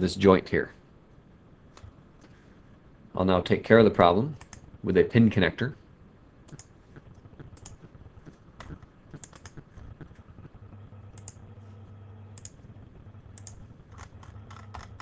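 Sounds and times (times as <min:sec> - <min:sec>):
low steady hum: 0:00.0 - 0:15.0
computer mouse and keyboard clicks: 0:04.4 - 0:04.6, 0:06.5 - 0:11.4, 0:13.3 - 0:15.0.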